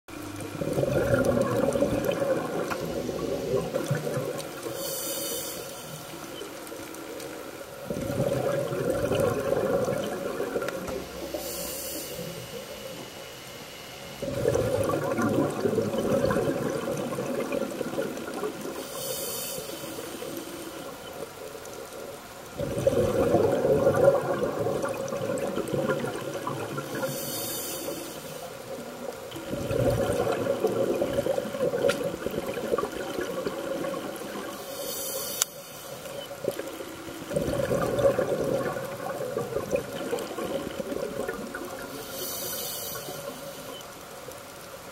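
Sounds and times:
bubbling rush of exhaled air: 0:00.1 - 0:06.4, 0:07.6 - 0:12.7, 0:14.2 - 0:21.0, 0:22.5 - 0:35.3, 0:36.4 - 0:43.4
regulator inhalation hiss: 0:04.5 - 0:07.4, 0:11.0 - 0:14.2, 0:18.6 - 0:21.0, 0:26.8 - 0:28.9, 0:34.4 - 0:36.2, 0:41.9 - 0:43.8.

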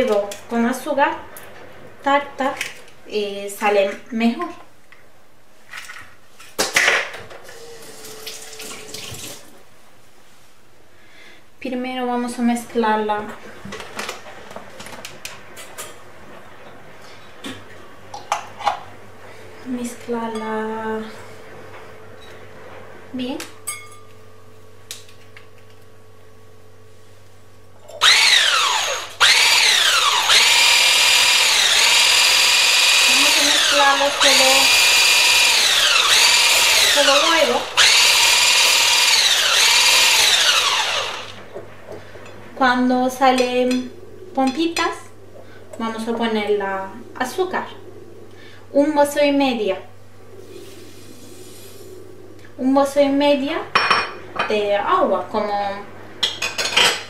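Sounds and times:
electric hand whisk whining: 0:28.0 - 0:41.5.

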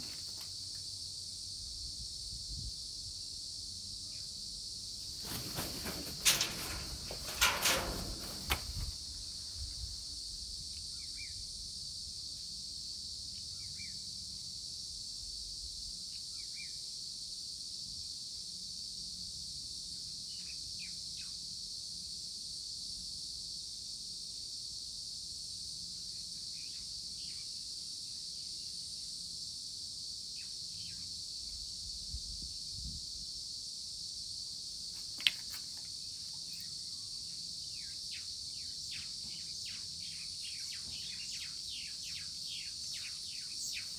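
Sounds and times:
insects chirring: 0:00.0 - 0:43.9
knocks and rustles: 0:05.2 - 0:09.0
faint bird chirps: 0:10.9 - 0:11.4, 0:36.5 - 0:43.9.

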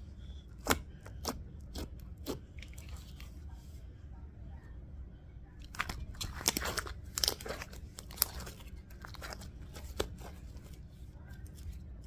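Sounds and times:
slime crackling and popping: 0:05.6 - 0:10.3.

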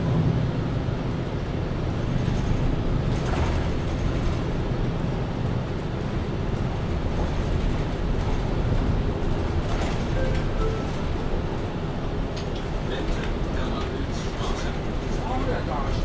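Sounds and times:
bus engine droning: 0:00.0 - 0:16.0.

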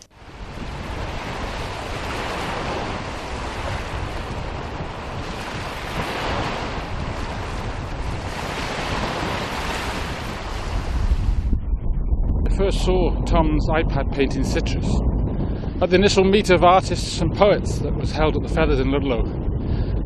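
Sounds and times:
wind rumbling on microphone: 0:00.0 - 0:20.0
surf washing onto beach: 0:00.1 - 0:11.4.

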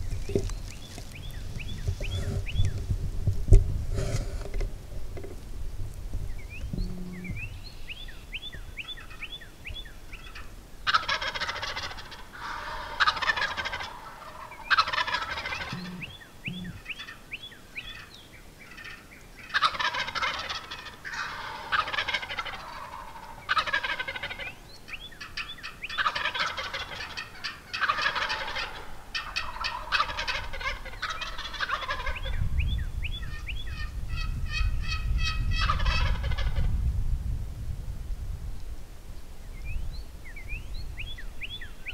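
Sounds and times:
turkeys gobbling: 0:00.2 - 0:02.9, 0:06.5 - 0:07.6, 0:08.8 - 0:32.4, 0:33.1 - 0:36.7
turkey yelps: 0:10.2 - 0:17.2, 0:18.7 - 0:24.6, 0:25.2 - 0:32.4, 0:33.3 - 0:36.7.

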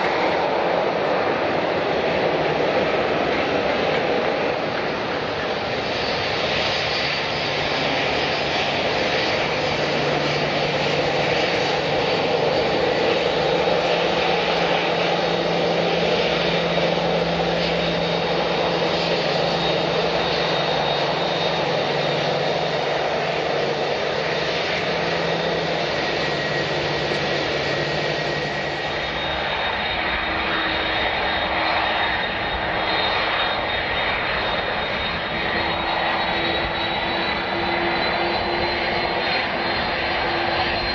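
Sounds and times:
airliner engines rushing: 0:00.0 - 0:40.9.

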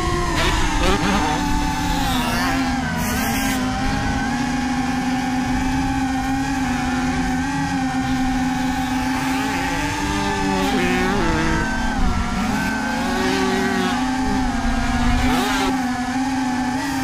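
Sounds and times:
motor running: 0:00.0 - 0:17.0.

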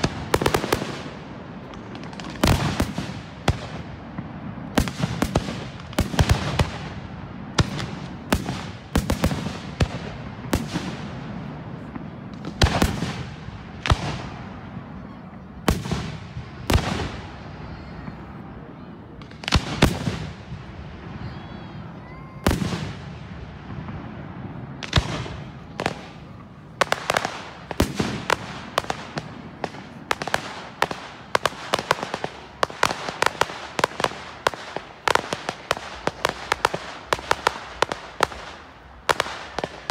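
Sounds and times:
fireworks bursting with bangs: 0:00.0 - 0:39.9.

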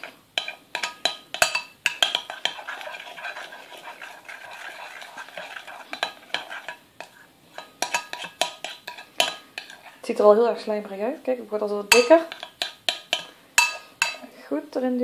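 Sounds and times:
spoon stirring scrape: 0:00.0 - 0:10.1, 0:11.9 - 0:14.3
spoon clinking on glass: 0:00.4 - 0:02.3, 0:11.9 - 0:14.2.

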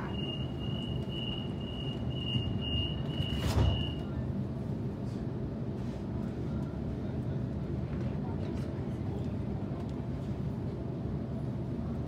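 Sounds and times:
door warning tone beeping: 0:00.0 - 0:04.0
standing train rumble: 0:00.0 - 0:12.0.

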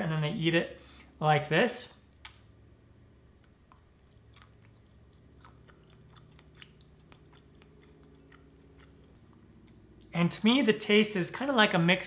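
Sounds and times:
soft chewing: 0:03.4 - 0:10.2.

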